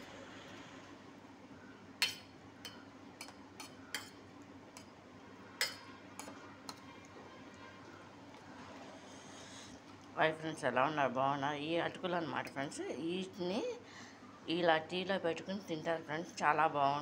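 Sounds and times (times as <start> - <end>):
spoon clinking against metal bowl: 2.0 - 4.2, 5.6 - 6.8.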